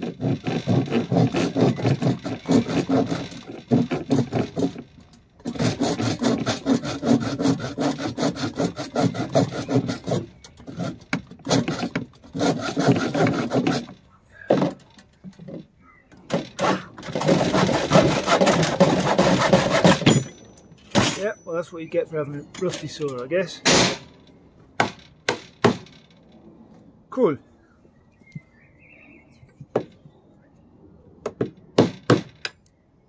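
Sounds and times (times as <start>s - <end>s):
handsaw cutting wood: 0.0s - 14.8s, 16.3s - 20.3s.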